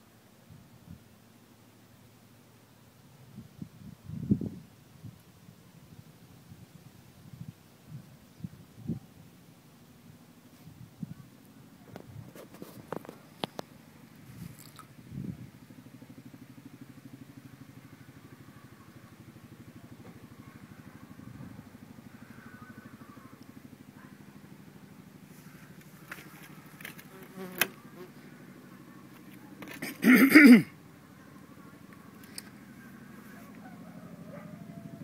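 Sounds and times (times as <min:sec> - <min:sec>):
engine running steadily: 0:09.2 - 0:35.0.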